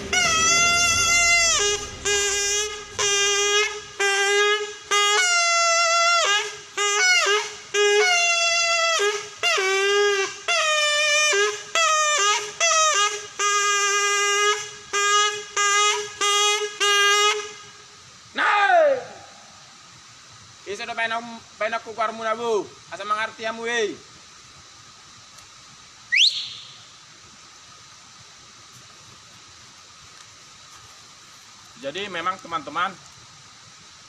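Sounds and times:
buffalo-horn trumpet blasts: 0:00.0 - 0:17.8.

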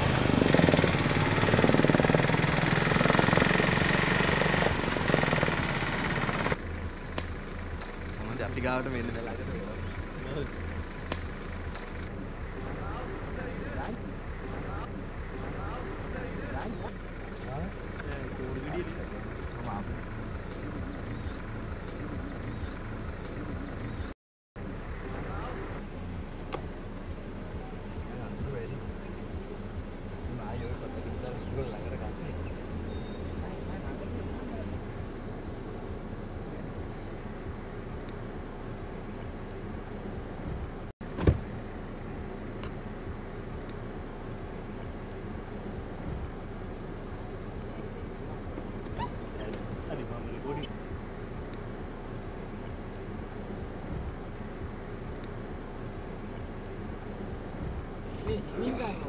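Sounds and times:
high-pitched insect chorus: 0:00.0 - 0:59.0
low background rumble: 0:00.0 - 0:59.0
sharp click: 0:11.1 - 0:12.1.

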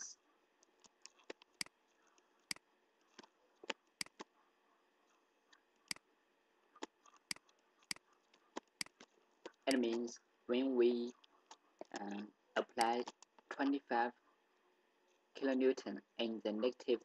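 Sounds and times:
computer mouse clicking: 0:00.6 - 0:04.3, 0:06.8 - 0:10.1.

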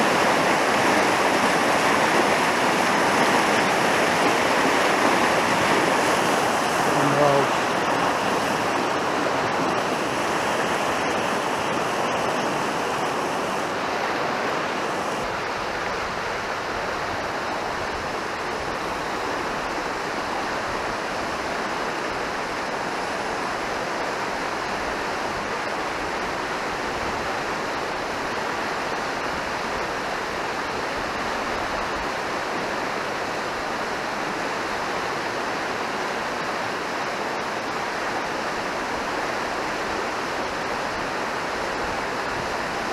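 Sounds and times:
stream rushing over rocks: 0:00.0 - 0:42.9.

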